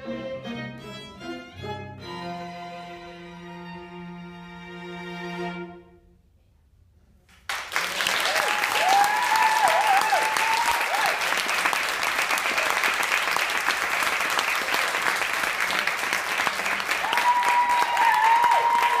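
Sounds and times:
audience applauding: 7.5 - 19.0.

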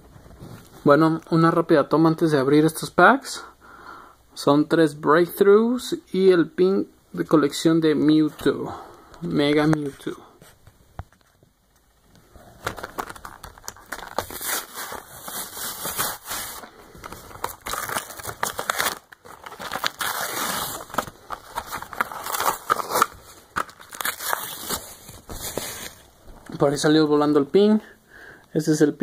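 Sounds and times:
plastic packaging tearing and crinkling: 12.4 - 26.1.

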